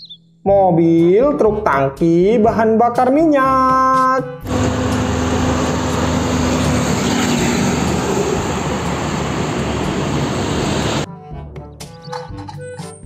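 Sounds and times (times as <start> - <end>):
lorry traffic noise: 4.5 - 11.1
truck diesel engine rumble: 4.5 - 11.1
tyre and road noise: 4.5 - 11.1.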